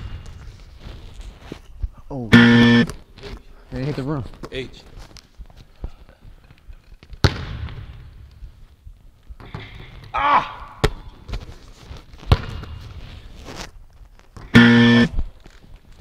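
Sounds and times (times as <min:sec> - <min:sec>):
person shouting: 0:10.2 - 0:10.8
basketball bouncing in a gym: 0:12.3 - 0:12.8.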